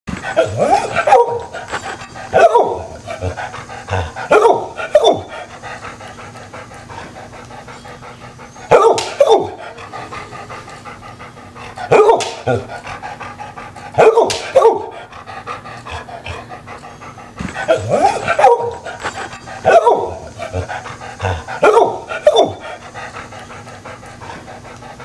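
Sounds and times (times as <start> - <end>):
dog panting: 0.1 - 25.0
dog barking excitedly: 0.3 - 5.5, 8.5 - 10.1, 11.6 - 12.8, 13.7 - 15.1, 17.6 - 23.1.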